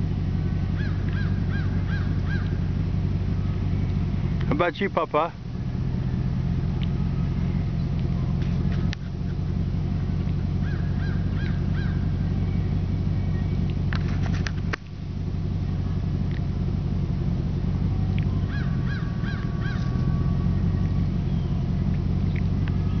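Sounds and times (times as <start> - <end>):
low motor hum: 0.0 - 23.0
small bird calling: 0.6 - 2.7, 10.5 - 13.8, 18.3 - 23.0.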